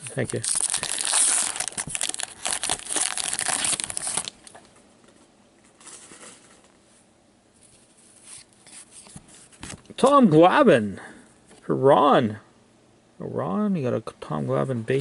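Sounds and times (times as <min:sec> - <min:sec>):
wrapper tearing and crinkling: 0:00.0 - 0:04.4
cards rustling: 0:00.1 - 0:04.4.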